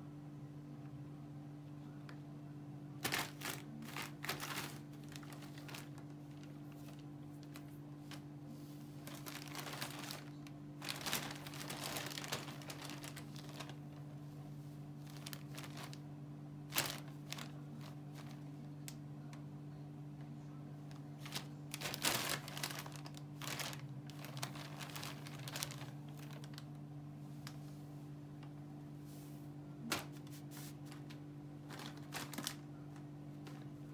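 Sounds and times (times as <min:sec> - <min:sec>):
plastic bag rustling: 0:03.0 - 0:16.0, 0:16.6 - 0:18.7, 0:20.9 - 0:26.8, 0:29.2 - 0:33.9.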